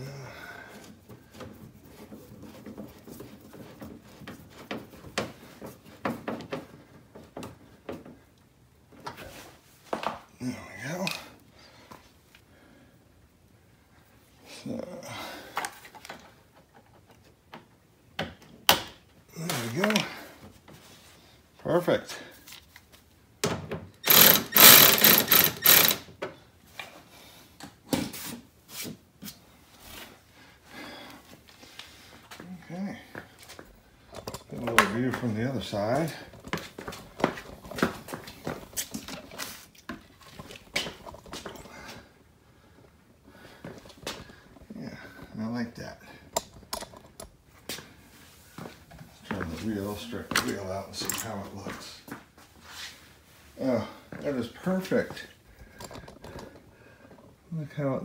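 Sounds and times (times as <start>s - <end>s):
screwdriver clicks and creaks: 23.9s - 26.1s
cordless ratchet rattling: 24.0s - 26.0s.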